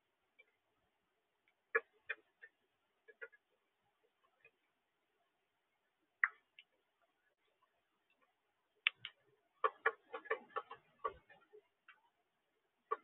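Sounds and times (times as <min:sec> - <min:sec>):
birds pecking at corn: 0:01.4 - 0:04.7, 0:08.2 - 0:12.1.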